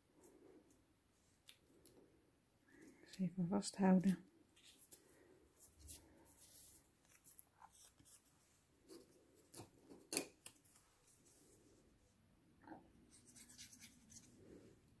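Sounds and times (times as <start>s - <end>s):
paper rustling: 4.5s - 9.5s.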